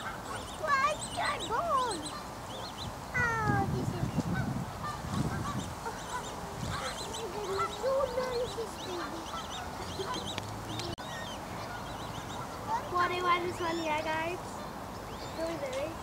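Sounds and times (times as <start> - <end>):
geese honking: 4.4 - 14.1.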